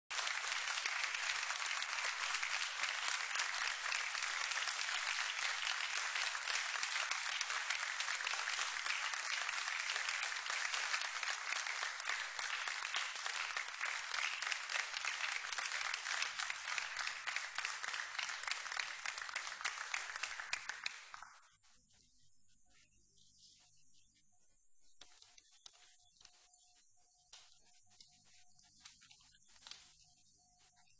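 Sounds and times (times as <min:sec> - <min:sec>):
audience applauding: 0:00.1 - 0:21.3.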